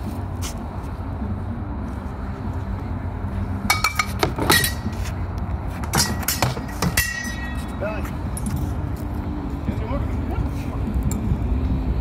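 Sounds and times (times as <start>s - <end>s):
metal blades clashing: 5.9s - 7.7s.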